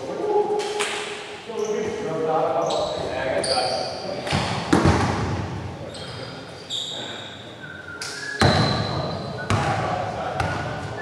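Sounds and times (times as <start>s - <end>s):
sneaker squeaks: 2.6s - 4.8s, 5.8s - 11.0s.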